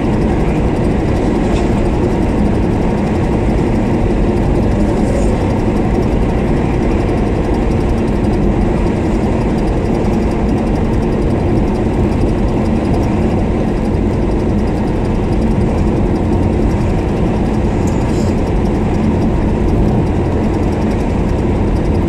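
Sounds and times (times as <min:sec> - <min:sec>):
car engine hum: 0:00.0 - 0:22.0
road noise: 0:00.0 - 0:22.0.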